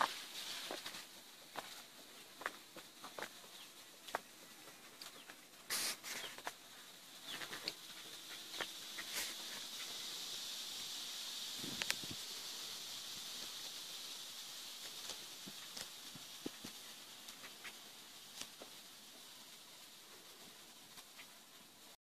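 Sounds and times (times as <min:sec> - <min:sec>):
insect drone: 0:00.0 - 0:22.0
bird chirps: 0:07.2 - 0:07.7.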